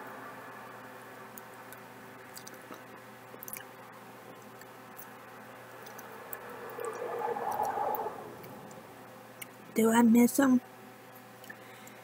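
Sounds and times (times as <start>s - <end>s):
faint hum: 0.0s - 12.0s
person chewing food: 1.3s - 5.2s, 5.8s - 7.7s.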